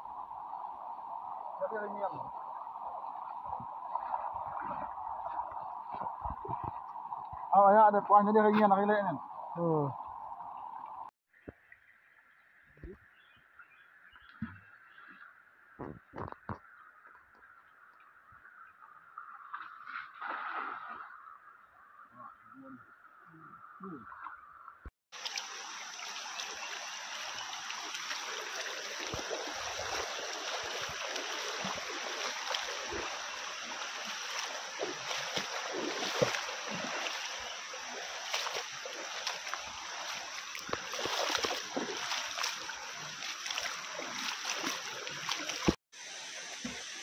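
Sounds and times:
feet wading splashes: 2.8 - 7.5, 25.1 - 45.8
river water rushing over rocks: 25.2 - 45.8.

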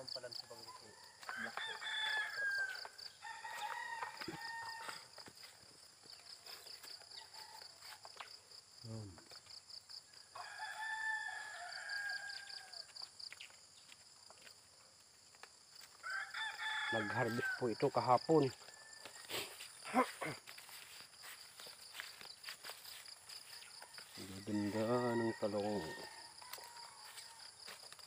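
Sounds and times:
insects chirping: 0.0 - 28.0
roosters crowing: 0.7 - 5.5, 6.2 - 8.2, 10.2 - 13.0, 15.9 - 20.2, 23.0 - 27.8.

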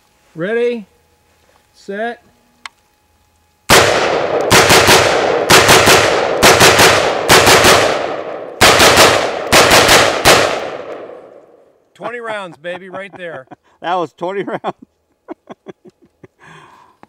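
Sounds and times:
gunshot echo: 3.7 - 11.6
rifle firing: 3.7 - 11.6.

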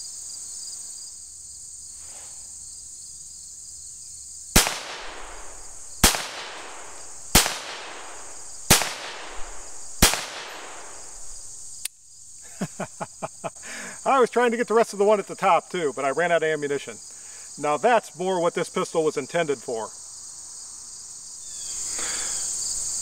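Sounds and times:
insects buzzing: 0.0 - 23.0
pistol shots with echo: 4.6 - 11.6.

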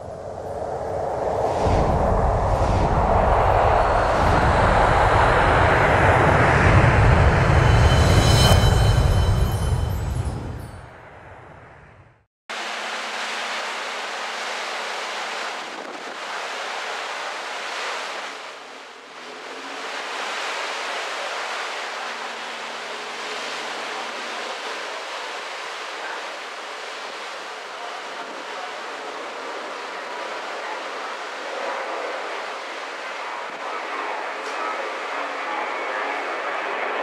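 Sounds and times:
wind buffeting microphone: 0.0 - 10.9
wind and sea rushing: 0.0 - 37.0.

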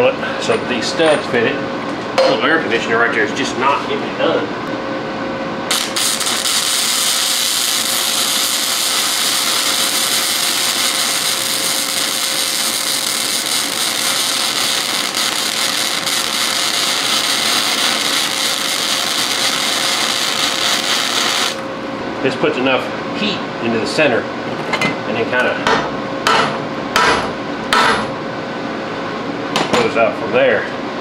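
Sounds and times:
welding arc crackling: 5.7 - 21.7.

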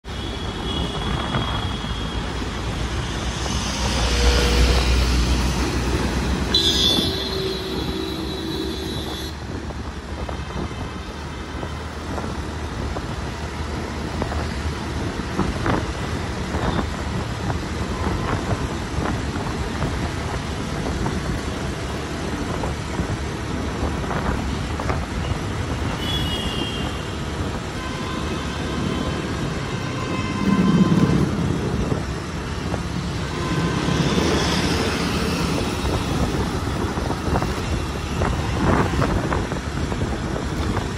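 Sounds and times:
city road traffic: 0.0 - 40.9
vehicle horns: 3.3 - 9.6, 25.9 - 31.6, 33.2 - 35.6.

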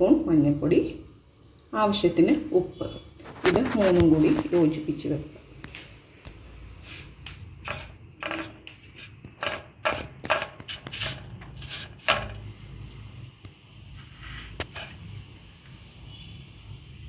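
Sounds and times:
fingers scraping spices on metal plate: 7.6 - 12.5.

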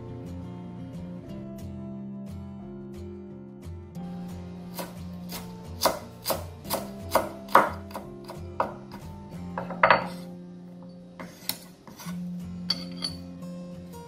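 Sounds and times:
quiet background music: 0.0 - 14.0
cleaver chopping on wooden board: 4.7 - 9.0.

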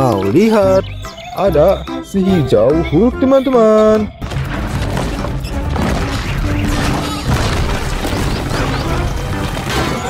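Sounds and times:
dramatic music: 0.0 - 10.0
crashing destruction: 4.1 - 10.0.

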